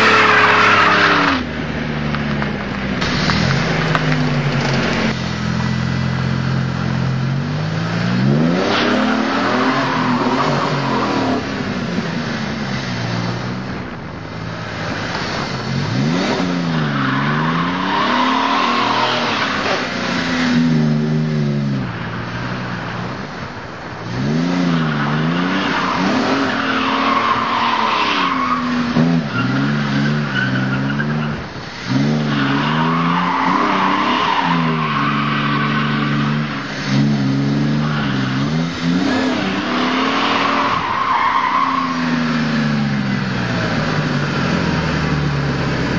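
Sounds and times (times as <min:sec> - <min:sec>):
tyres squealing on pavement: 0:00.0 - 0:01.4, 0:08.3 - 0:11.5, 0:15.2 - 0:20.4, 0:24.4 - 0:44.5
car engine revving: 0:00.0 - 0:45.9.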